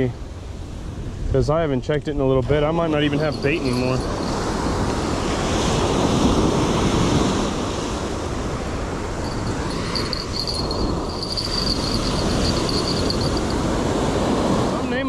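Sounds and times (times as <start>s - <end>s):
wind buffeting microphone: 0.8s - 14.8s
thin high whine: 9.2s - 13.7s.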